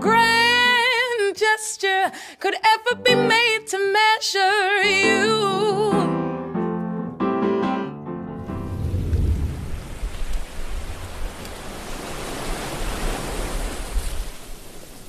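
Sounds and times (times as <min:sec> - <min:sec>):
deep rumble: 0:08.3 - 0:11.2
steady rushing noise: 0:08.3 - 0:11.4.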